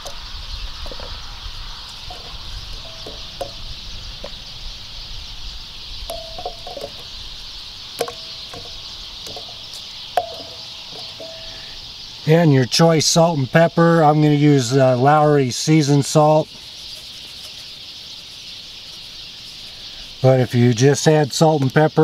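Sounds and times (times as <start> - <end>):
chickens clucking: 0.0 - 22.0
insects chirring: 0.0 - 22.0.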